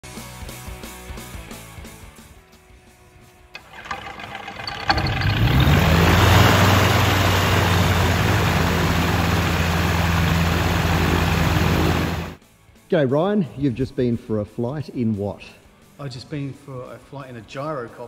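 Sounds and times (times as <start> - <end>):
aircraft engine starting and idling: 3.6 - 12.4
propeller turning: 3.6 - 12.4.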